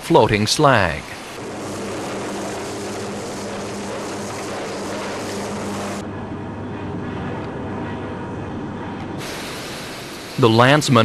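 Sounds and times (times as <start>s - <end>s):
low electrical hum: 1.1s - 11.0s
industrial machinery roar: 1.2s - 7.1s.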